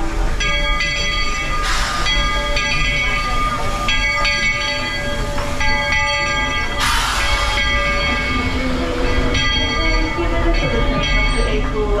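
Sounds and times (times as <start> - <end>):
steam hissing: 0.0 - 9.3
steam train held tones: 0.0 - 12.0.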